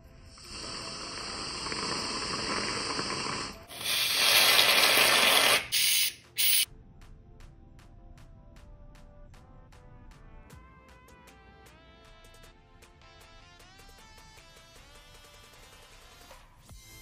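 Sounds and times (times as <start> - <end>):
aerosol can spraying: 0.4 - 6.7.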